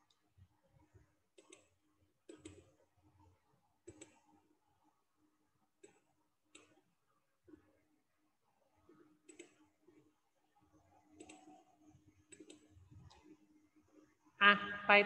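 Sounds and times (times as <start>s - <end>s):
faint steady hum: 0.0s - 15.0s
computer mouse clicks: 1.3s - 2.8s, 3.8s - 4.4s, 5.8s - 6.9s, 8.9s - 10.1s, 11.0s - 13.4s.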